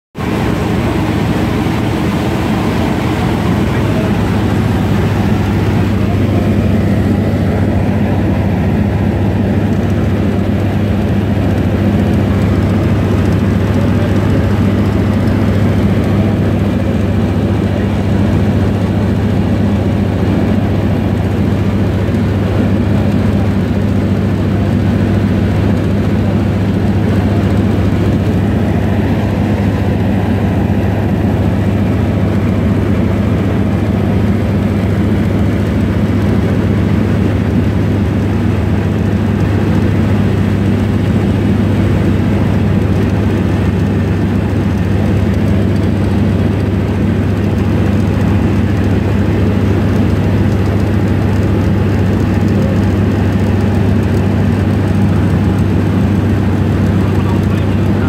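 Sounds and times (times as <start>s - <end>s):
rushing noise: 0.2s - 21.9s, 26.4s - 35.9s
propeller plane engine droning: 0.2s - 58.0s.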